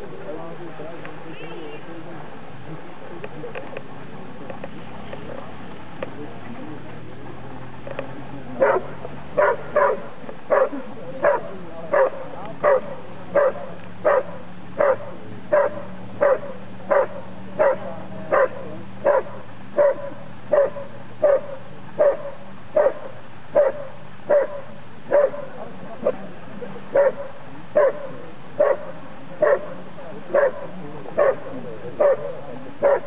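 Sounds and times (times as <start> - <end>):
dog barking: 8.6 - 25.5, 26.9 - 33.0.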